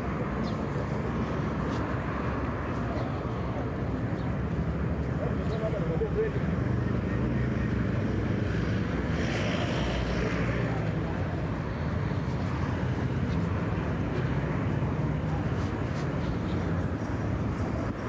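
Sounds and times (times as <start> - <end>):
low rumble of traffic: 0.0 - 18.0.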